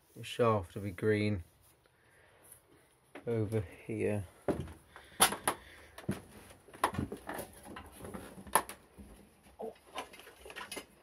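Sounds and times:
knocks and clicks of clutter handled: 4.5s - 11.0s.

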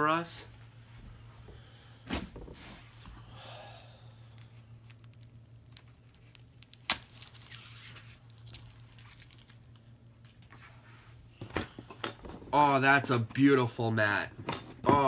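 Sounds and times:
low steady hum: 0.0s - 15.0s
packaging rustling: 4.8s - 10.7s.

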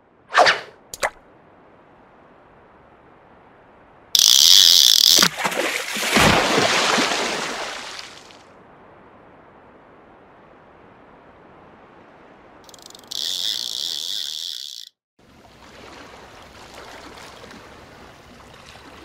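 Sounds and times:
fishing reel drag buzzing: 4.2s - 5.3s, 12.7s - 15.0s
big splash: 5.2s - 8.4s.

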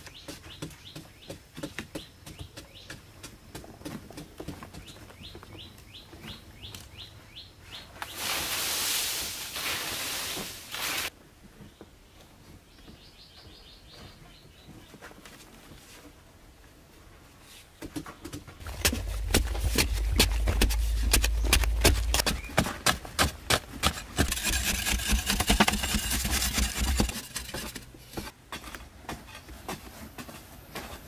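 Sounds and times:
loose dirt scraping and falling: 18.1s - 31.0s
deep boom: 18.6s - 22.5s
digging tool chopping into earth: 18.6s - 27.3s.

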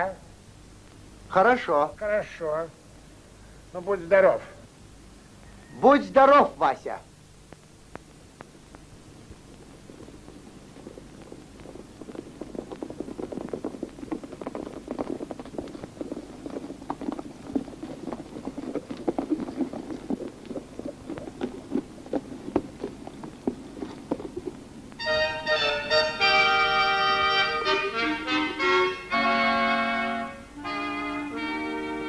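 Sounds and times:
horse hoofbeats clattering: 8.0s - 32.0s
accordion music: 25.0s - 32.0s.

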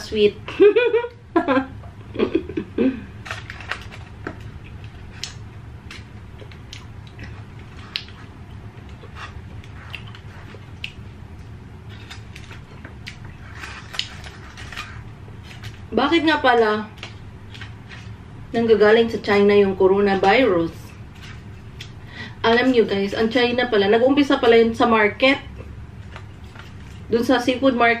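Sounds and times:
low steady hum: 0.0s - 28.0s
muffled hums with full mouth: 0.4s - 3.4s, 4.3s - 16.1s
person chewing: 3.2s - 15.9s
aluminium foil crinkling: 3.2s - 18.2s, 26.0s - 27.6s
wet mouth clicks and smacks: 9.8s - 11.0s.

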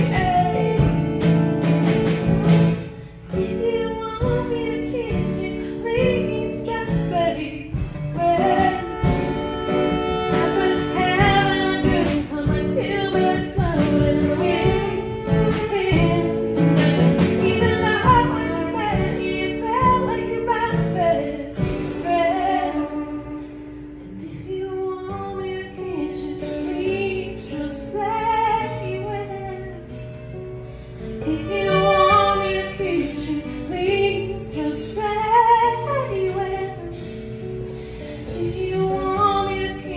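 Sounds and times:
woman singing: 0.0s - 2.2s, 3.2s - 30.4s, 31.2s - 39.9s
drum kit: 0.0s - 22.7s
acoustic guitar: 0.0s - 39.9s
fiddle: 3.3s - 27.5s, 31.1s - 35.5s.

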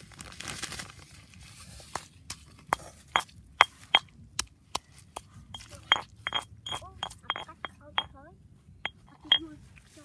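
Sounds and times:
stone pestle pounding in mortar: 2.8s - 4.1s, 5.2s - 8.1s.

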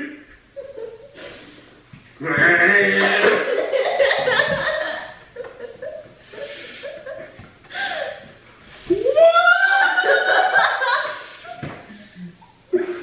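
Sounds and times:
people stifling laughter: 3.0s - 8.3s, 8.9s - 13.0s.

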